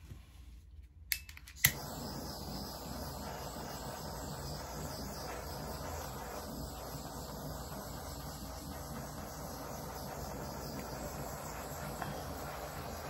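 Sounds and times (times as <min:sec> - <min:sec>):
torch igniter clicking: 0:01.1 - 0:13.0
torch flame hissing: 0:01.6 - 0:13.0.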